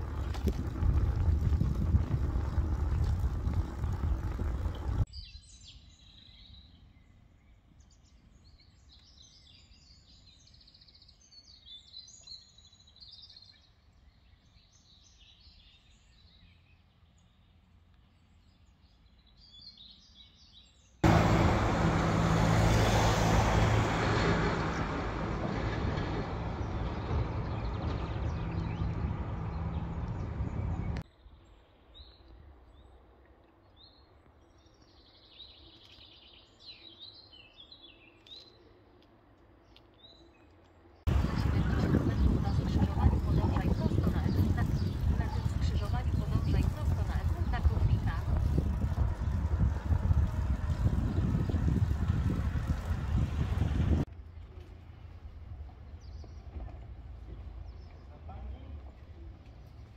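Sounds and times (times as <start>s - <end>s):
wind rushing over microphone: 0.0s - 5.1s, 21.0s - 31.0s, 41.1s - 54.1s
small birds chirping: 33.6s - 54.8s.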